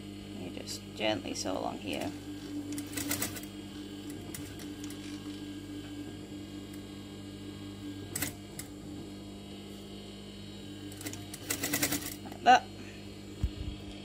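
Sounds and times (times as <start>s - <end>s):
sewing machine stitching: 10.9s - 12.2s.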